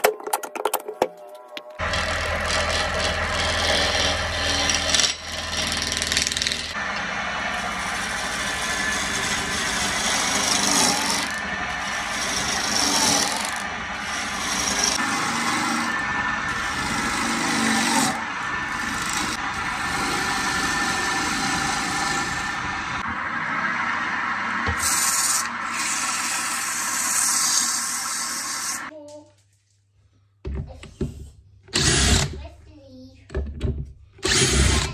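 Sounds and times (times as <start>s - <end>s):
gouge scraping wood on lathe: 1.8s - 6.8s, 7.4s - 22.8s, 24.8s - 28.8s.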